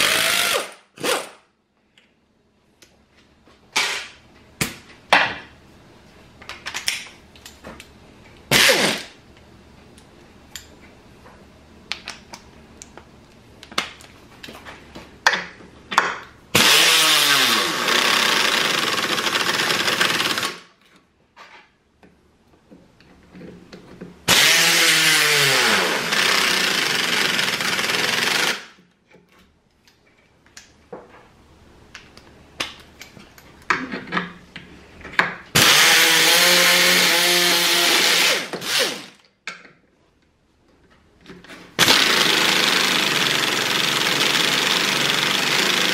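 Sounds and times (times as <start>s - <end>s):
pneumatic air ratchet driving screws: 3.8s - 4.2s, 8.5s - 9.1s.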